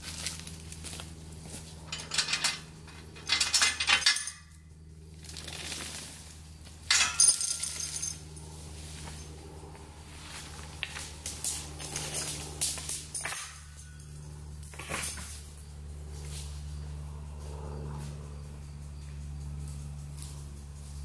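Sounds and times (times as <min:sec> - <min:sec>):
metallic clinking and rustling: 0:01.5 - 0:04.6, 0:05.2 - 0:09.4, 0:11.3 - 0:15.6.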